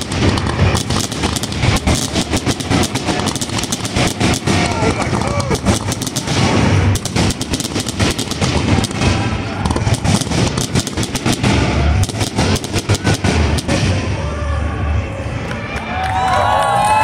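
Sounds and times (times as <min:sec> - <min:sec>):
firework shells bursting: 0:00.0 - 0:14.0.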